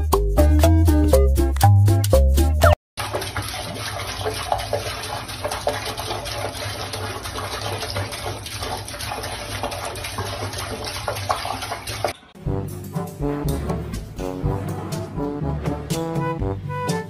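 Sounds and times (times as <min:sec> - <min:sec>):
faucet water splashing in sink: 0:03.0 - 0:12.4.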